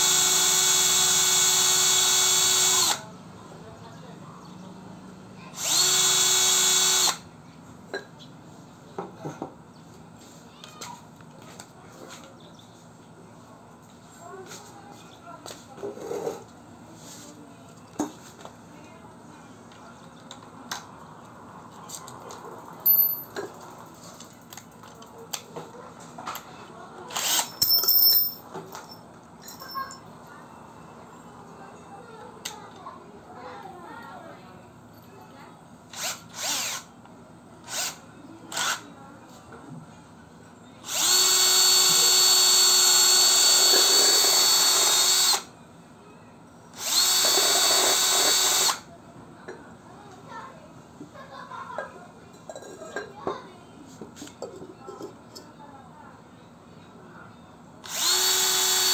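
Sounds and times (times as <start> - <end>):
drill and bit handled on tiles: 5.6 - 7.1, 27.1 - 29.9, 40.9 - 45.4, 46.8 - 48.8, 57.9 - 58.9
sharp metallic clinks: 22.8 - 23.4, 27.3 - 30.1.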